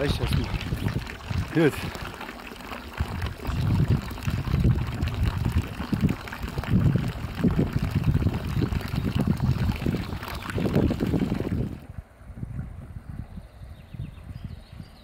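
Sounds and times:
wind gusting on microphone: 0:00.0 - 0:02.2, 0:02.9 - 0:15.0
water pouring into trough: 0:00.0 - 0:11.9.

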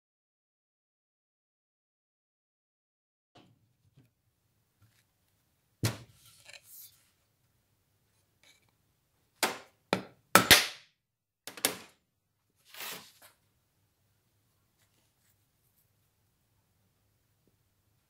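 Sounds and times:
metal scrape: 0:06.1 - 0:07.1, 0:12.7 - 0:13.3.

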